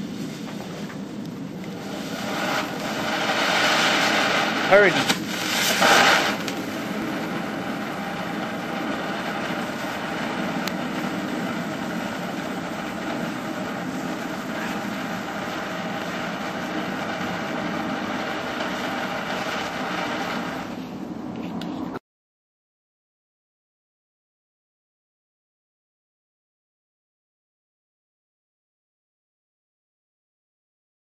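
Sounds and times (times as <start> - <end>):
fountain firework hissing: 0.0 - 21.2.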